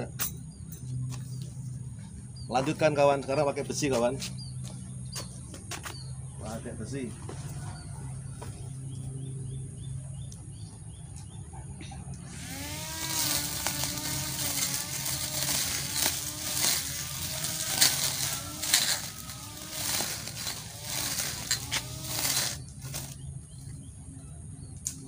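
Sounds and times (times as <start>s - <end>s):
grass trimmer motor humming: 12.2s - 23.4s
trimmer cutting long grass: 12.2s - 23.4s
blade striking stems: 12.3s - 23.2s.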